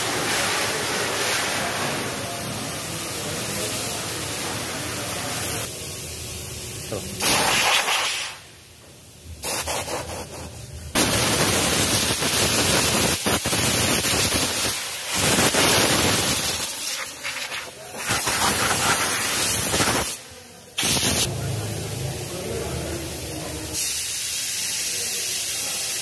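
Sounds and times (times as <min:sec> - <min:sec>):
air blow gun hissing: 0:06.9 - 0:08.6, 0:09.4 - 0:21.3, 0:23.8 - 0:26.0.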